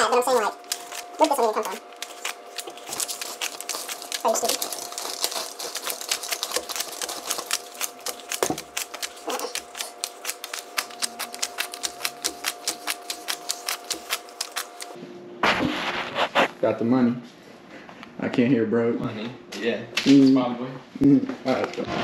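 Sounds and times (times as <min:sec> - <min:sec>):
banknotes counted by hand: 0:00.0 - 0:15.0.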